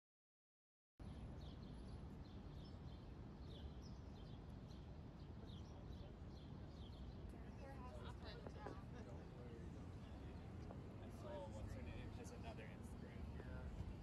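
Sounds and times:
small birds chirping: 1.0 - 7.7
traffic rumble: 7.4 - 14.0.

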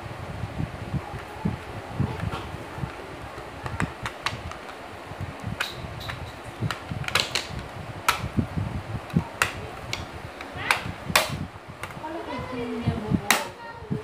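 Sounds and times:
electric fan whirring: 0.0 - 14.0
plastic clicks and knocks: 5.6 - 8.3.

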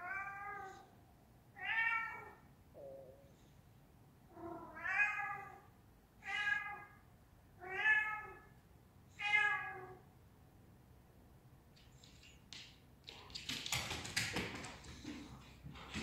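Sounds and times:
cat meowing: 4.4 - 7.0, 7.6 - 8.5, 9.2 - 10.0.

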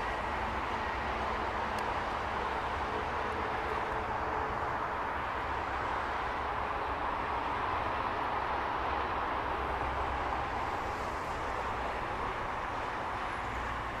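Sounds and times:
freeway traffic hum: 0.0 - 14.0.

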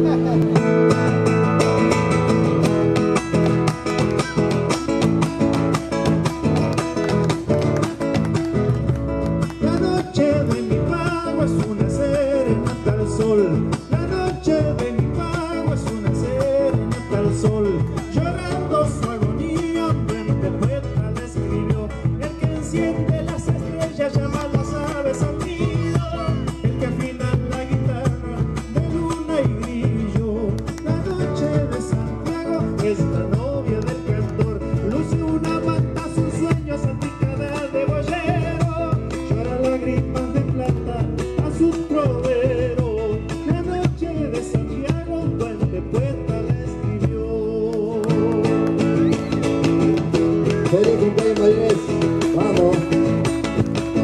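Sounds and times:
bass drum beating: 0.0 - 54.0
strummed acoustic guitar: 0.0 - 54.0
man singing: 9.0 - 54.0.

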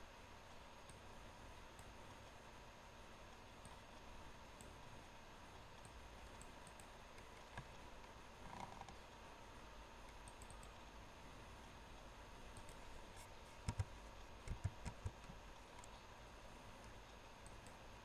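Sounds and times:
faint room hiss: 0.0 - 18.0
computer mouse clicks: 0.8 - 1.1, 4.5 - 4.8, 5.8 - 9.0, 10.0 - 10.8, 12.5 - 16.0, 16.8 - 17.8.

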